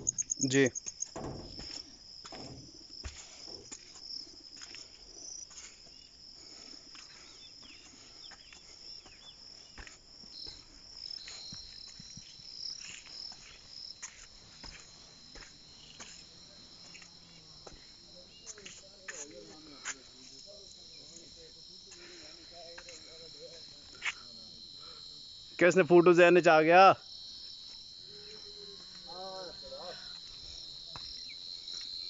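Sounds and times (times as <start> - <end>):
faint footsteps: 0.0 - 21.3
crickets chirring: 0.0 - 32.0
lower cricket trill: 0.0 - 32.0
knocks: 1.0 - 3.8.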